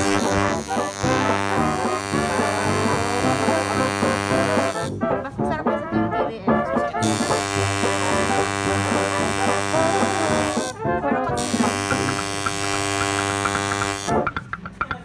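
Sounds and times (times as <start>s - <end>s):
tattoo machine buzzing: 0.0s - 5.0s, 7.0s - 10.8s, 11.4s - 14.3s.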